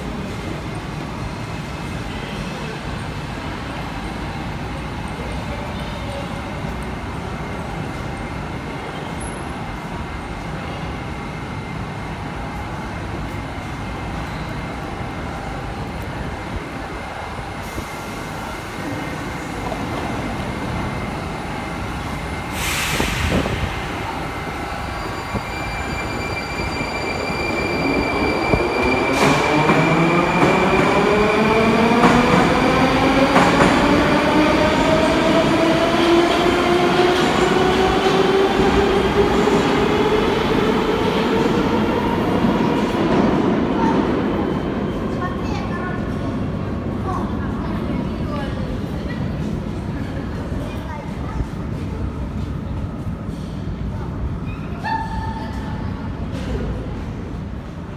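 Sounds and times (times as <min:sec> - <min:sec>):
train rumbling: 0:00.0 - 0:57.9
air hissing: 0:22.5 - 0:23.7.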